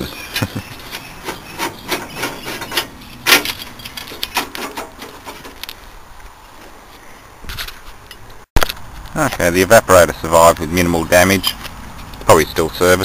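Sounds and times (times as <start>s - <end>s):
screwdriver clicking and scraping metal: 0.5s - 5.8s.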